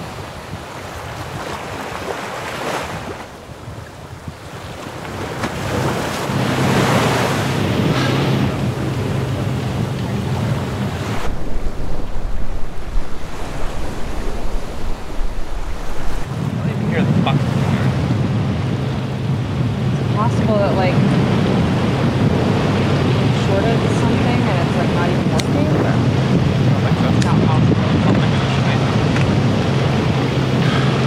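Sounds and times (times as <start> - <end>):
sea: 0.0 - 31.0
wind buffeting microphone: 0.0 - 31.0.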